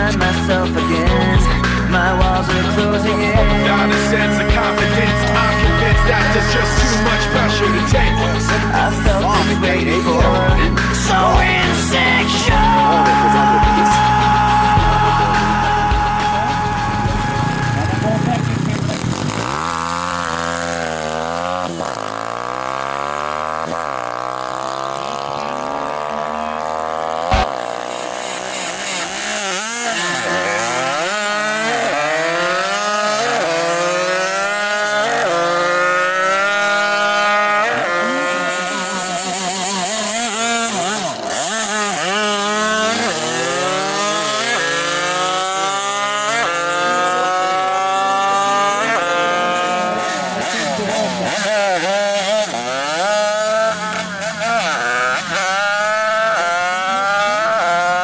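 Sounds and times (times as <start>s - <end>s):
moped engine revving: 0.0s - 58.0s.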